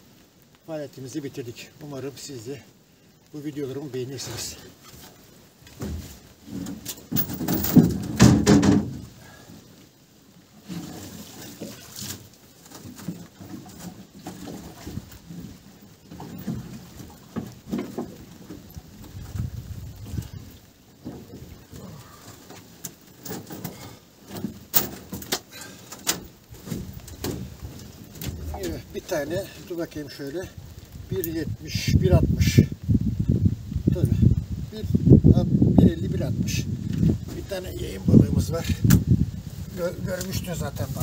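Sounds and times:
rummaging and bumps: 5.7s - 9.1s
knocks and slaps in a boat: 5.7s - 9.2s, 11.5s - 20.4s, 21.0s - 21.6s, 22.5s - 28.8s.

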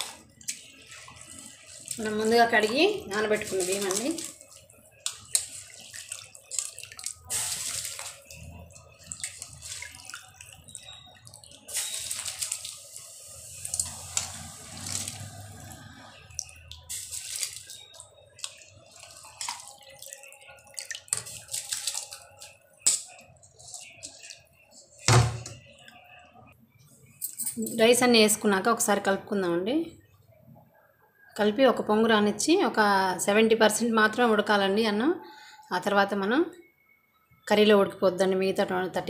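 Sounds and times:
water bubbling at a boil: 0.0s - 26.4s
rice poured into water splashing: 3.3s - 23.1s.

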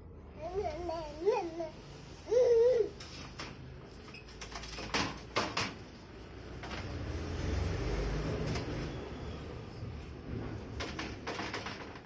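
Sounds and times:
metal case rumbling and rattling: 10.3s - 12.0s.

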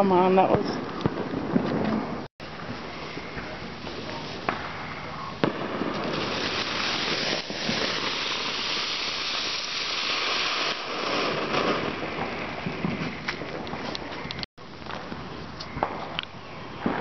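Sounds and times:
firework fountain hissing: 2.4s - 14.2s.

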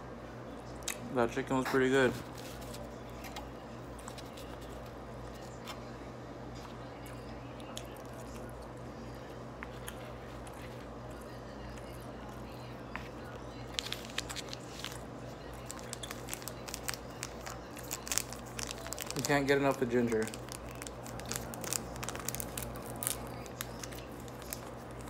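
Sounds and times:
low background hum: 0.0s - 25.0s
close-up chewing: 6.6s - 19.3s.

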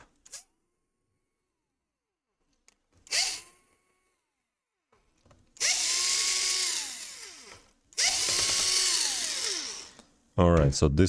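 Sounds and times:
cordless drill motor whine: 3.0s - 4.3s, 5.6s - 10.0s.

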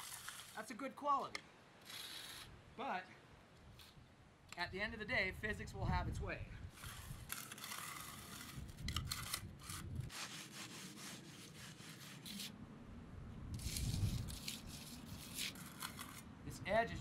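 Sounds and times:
steel tool scraping concrete: 0.0s - 0.6s, 1.8s - 2.5s, 6.8s - 12.5s, 13.6s - 16.2s.

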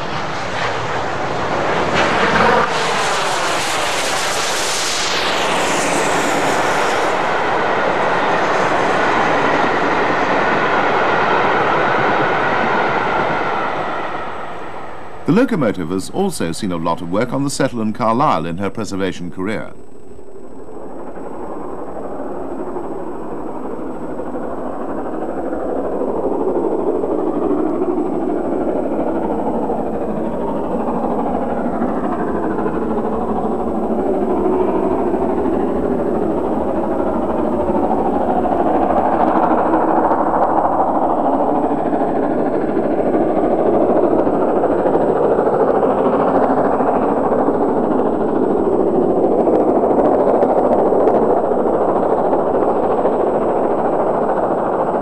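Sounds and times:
steam locomotive exhaust: 0.0s - 17.8s.

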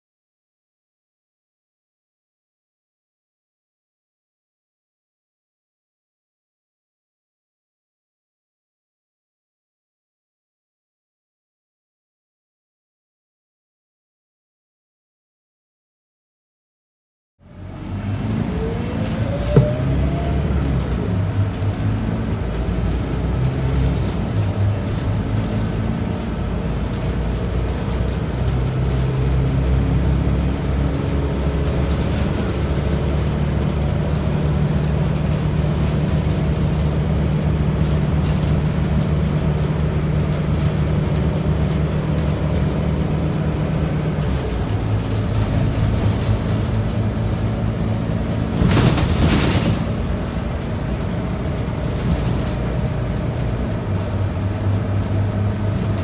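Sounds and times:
bus diesel engine: 17.4s - 56.0s
road noise: 17.4s - 56.0s.

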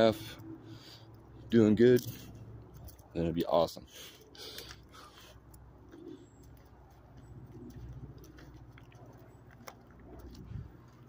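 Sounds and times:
footsteps crunching on gravel: 5.8s - 11.0s.

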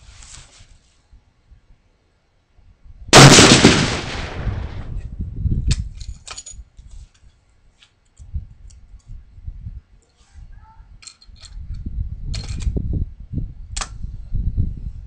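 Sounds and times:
rifle shot: 3.2s - 5.0s.

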